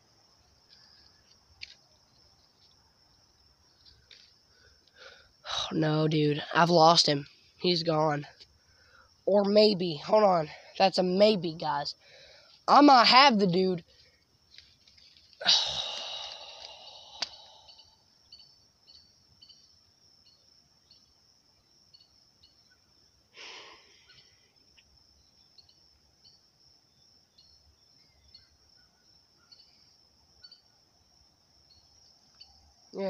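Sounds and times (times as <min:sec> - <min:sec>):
faint insect chirps: 0:00.0 - 0:33.0
person breathing out: 0:04.5 - 0:05.4, 0:12.0 - 0:12.6, 0:15.4 - 0:18.0, 0:23.4 - 0:24.3
person sighing: 0:15.4 - 0:17.9, 0:23.4 - 0:24.0.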